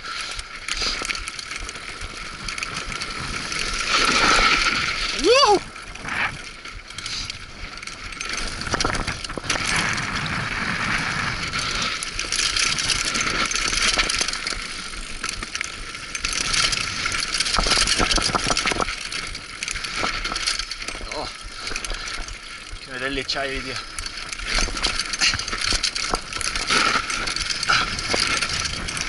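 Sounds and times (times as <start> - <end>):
bike rattling over bumps: 0.0 - 29.0.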